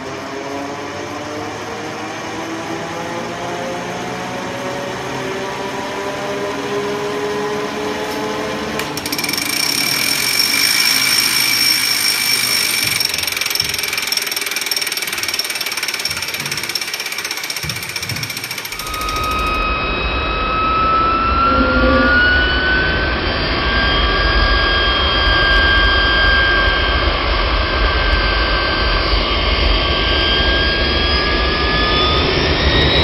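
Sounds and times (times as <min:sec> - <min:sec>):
high-pitched machine whine: 0:00.0 - 0:33.0
machine humming: 0:08.8 - 0:23.3.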